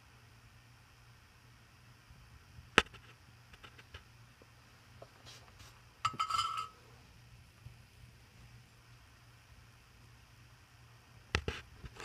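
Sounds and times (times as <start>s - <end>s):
metallic rattle with ringing tone: 6.0s - 6.8s.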